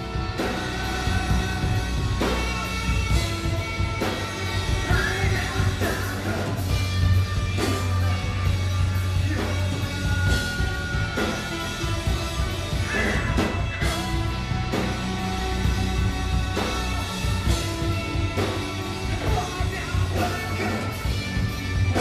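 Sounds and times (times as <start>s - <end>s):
distorted electric guitar: 0.0s - 22.0s
heavy bass guitar: 0.0s - 22.0s
rock drum kit: 0.0s - 22.0s
man singing into a microphone: 0.4s - 3.0s, 4.6s - 6.7s, 12.7s - 14.2s, 19.0s - 21.1s.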